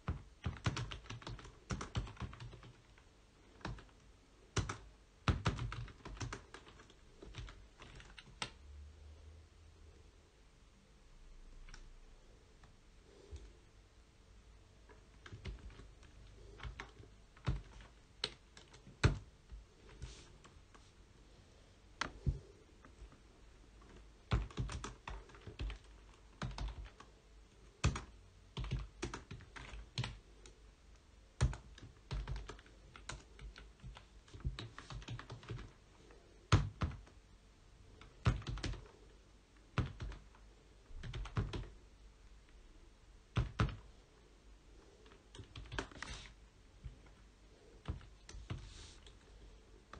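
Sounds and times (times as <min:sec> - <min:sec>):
computer keyboard typing: 0:00.0 - 0:08.6, 0:14.9 - 0:20.6, 0:23.8 - 0:27.1, 0:27.7 - 0:30.6, 0:31.4 - 0:35.8, 0:36.5 - 0:37.2, 0:38.0 - 0:39.0, 0:39.6 - 0:40.4, 0:41.0 - 0:41.8, 0:43.3 - 0:43.9, 0:45.0 - 0:47.2.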